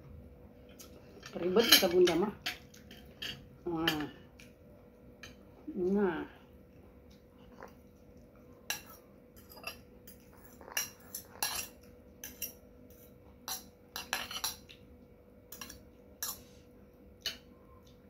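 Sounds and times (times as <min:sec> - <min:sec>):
fork clinking against glass bowl: 0:08.7 - 0:12.6, 0:15.5 - 0:16.4.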